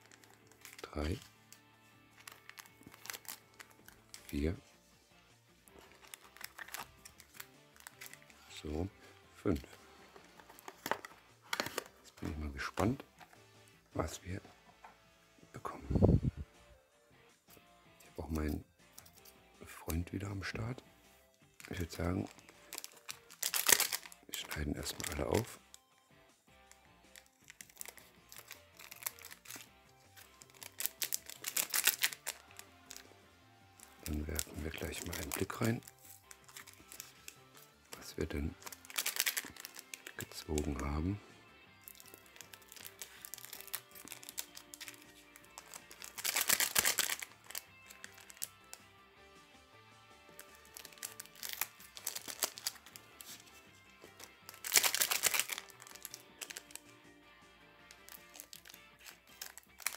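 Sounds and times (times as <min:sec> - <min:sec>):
foil wrappers crinkling: 0:00.0 - 0:01.3, 0:02.1 - 0:04.4, 0:05.7 - 0:08.4, 0:10.2 - 0:11.9, 0:21.6 - 0:25.6, 0:27.1 - 0:33.1, 0:33.8 - 0:40.8, 0:41.8 - 0:48.8, 0:50.4 - 0:57.0, 0:57.9 - 0:59.9
soft background music: 0:00.0 - 0:59.9
scissors snipping foil: 0:50.7 - 0:52.8, 0:58.0 - 0:59.9.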